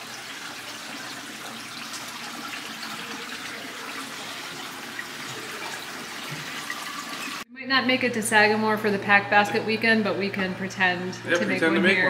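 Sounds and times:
running water rushing: 0.0 - 7.4.

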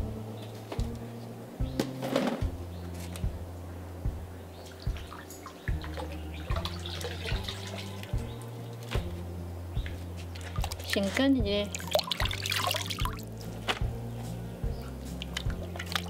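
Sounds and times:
soft background music: 0.0 - 16.0
water dripping and splashing: 4.6 - 8.3, 10.3 - 13.3, 14.8 - 16.0.

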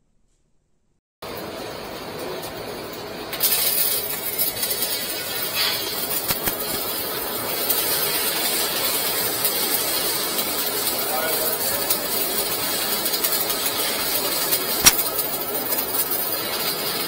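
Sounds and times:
arc welding crackling hiss: 3.4 - 16.8.

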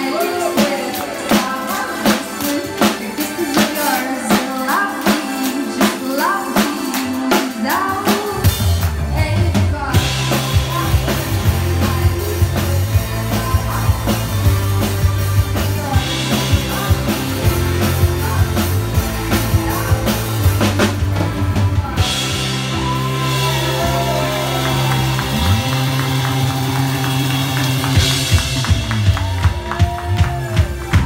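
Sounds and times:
woman singing: 0.0 - 20.8
rock band drums and bass: 0.0 - 31.0.

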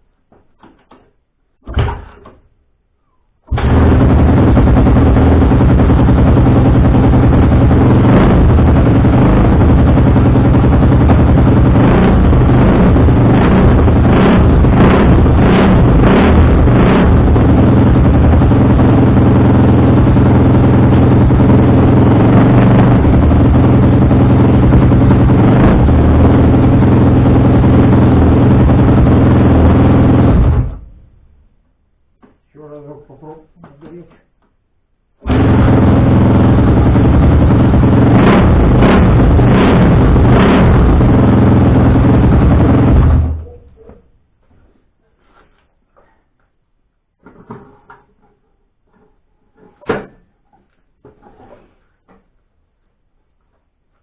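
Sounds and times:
thud: 0.3 - 2.5, 49.7 - 50.3
motorcycle engine idling: 3.6 - 30.8.

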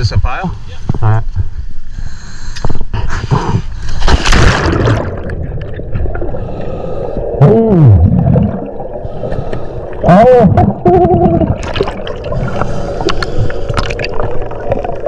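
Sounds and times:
splash into water: 4.0 - 5.4
underwater bubbles churning: 4.0 - 15.0.

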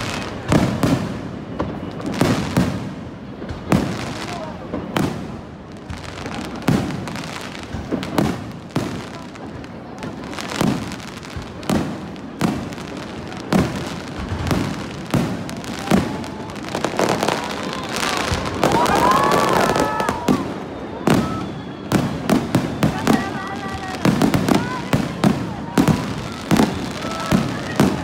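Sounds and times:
fireworks booming: 0.0 - 28.0
fireworks crackling: 0.0 - 28.0
faint whistling tone: 19.5 - 23.3.

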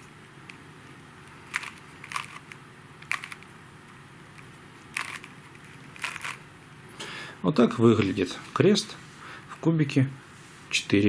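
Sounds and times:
puzzle cube layers clacking: 1.5 - 3.4, 4.9 - 6.4.

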